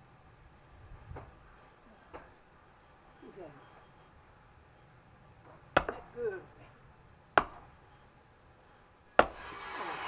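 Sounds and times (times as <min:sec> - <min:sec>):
sledgehammer striking steel wedge: 0:05.7 - 0:06.2, 0:07.3 - 0:07.8, 0:09.2 - 0:09.6.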